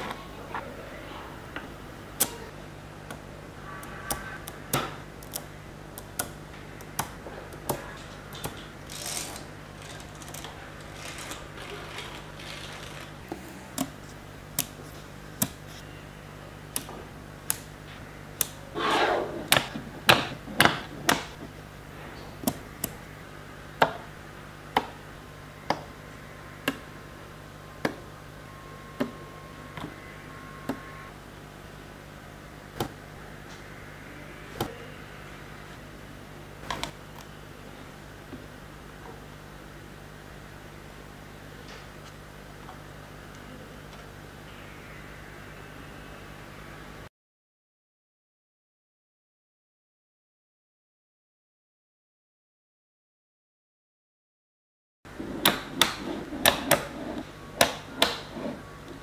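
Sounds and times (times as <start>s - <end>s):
magnetic balls clicking: 2.2s - 15.8s
balls rattling scrape: 8.1s - 13.3s, 55.2s - 57.2s.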